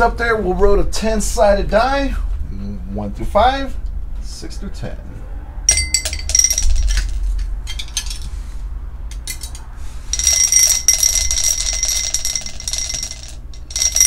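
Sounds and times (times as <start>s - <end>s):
glass ringing: 5.7s - 7.2s, 10.2s - 14.0s
die rattling in a glass: 5.7s - 8.2s, 10.2s - 14.0s.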